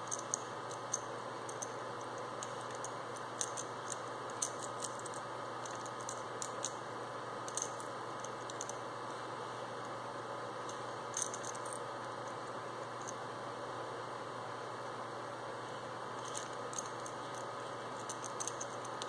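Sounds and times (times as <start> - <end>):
small parts clicking in fingers: 0.0 - 6.8, 7.4 - 8.8, 10.7 - 12.4, 16.2 - 19.0
steady background hum: 0.0 - 19.0.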